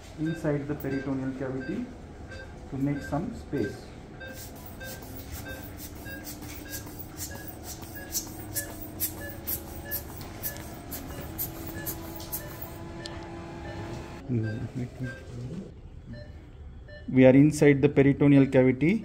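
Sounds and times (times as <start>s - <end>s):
short high beep: 0.3s - 13.1s
hissing air puffs through tubing: 4.2s - 12.8s.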